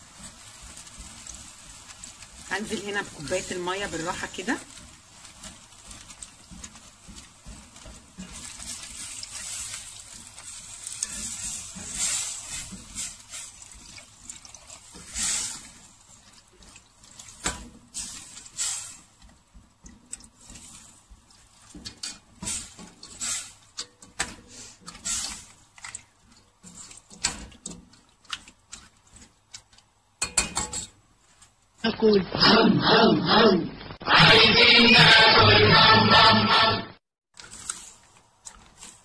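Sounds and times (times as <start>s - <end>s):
steady hiss: 0.0s - 27.6s
spatula stirring and scraping: 0.0s - 31.8s, 37.3s - 39.0s
liquid sloshing: 4.7s - 29.9s.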